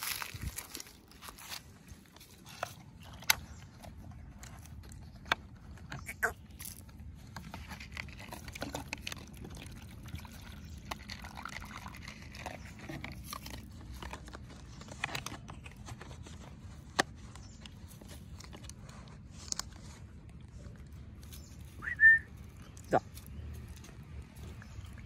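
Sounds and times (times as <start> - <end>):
dog crunching dry kibble: 0.0 - 25.0
water poured from plastic bottle: 7.7 - 14.0.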